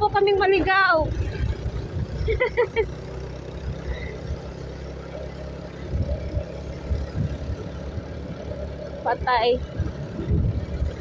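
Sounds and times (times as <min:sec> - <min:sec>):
motorcycle engine running: 0:00.0 - 0:11.0
wind buffeting microphone: 0:05.8 - 0:08.5, 0:09.2 - 0:11.0.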